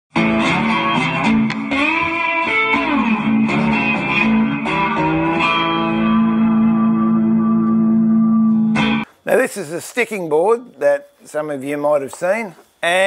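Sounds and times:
guitar with pitch bends: 0.1s - 9.1s.

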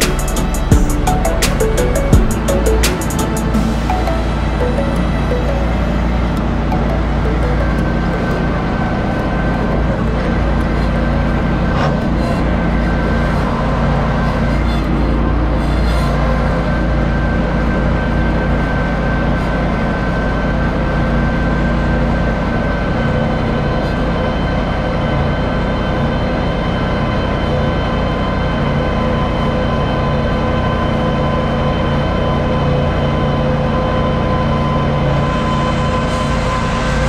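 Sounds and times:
mower deck whine: 0.0s - 14.3s
tractor engine drone: 0.0s - 37.0s.

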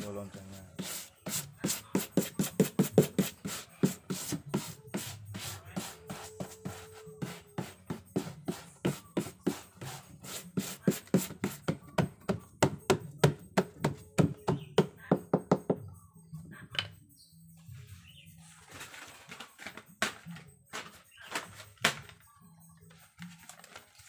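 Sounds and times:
brush dabbing on paper: 0.2s - 11.6s.

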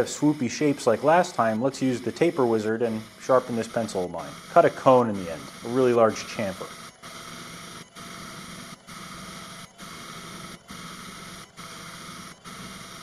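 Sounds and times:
router motor humming: 0.0s - 13.0s.

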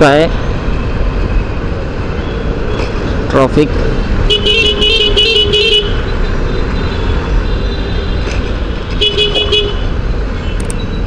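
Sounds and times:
engine and road rumble: 0.0s - 11.0s
vehicle horn tooting: 9.0s - 9.9s.

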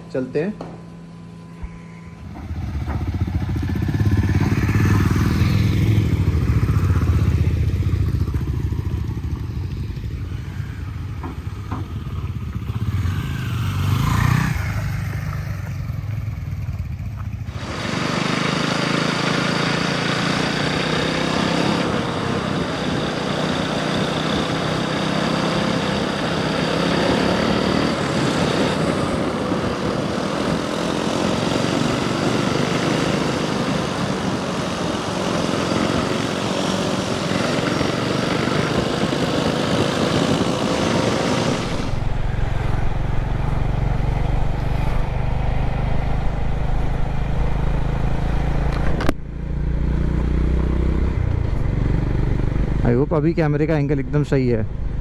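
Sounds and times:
motorcycle engines revving: 0.0s - 55.0s.

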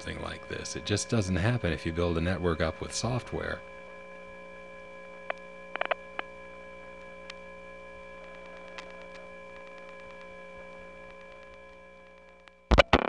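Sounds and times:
telephone line hum: 0.0s - 13.0s
sharp clicks: 5.2s - 6.3s, 8.2s - 10.3s.

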